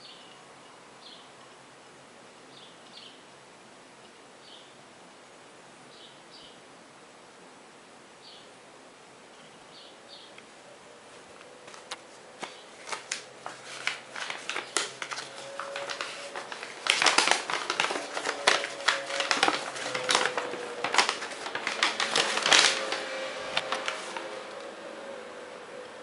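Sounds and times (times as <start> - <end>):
paper crackling and rustling: 11.6 - 24.6.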